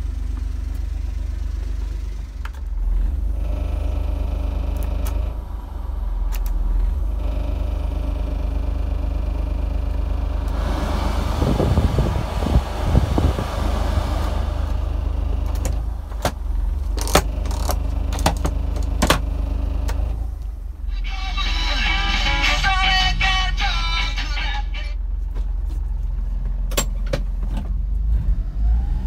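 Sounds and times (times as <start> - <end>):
car engine idling: 0.0 - 29.0
heater blower fan rushing: 2.5 - 20.9.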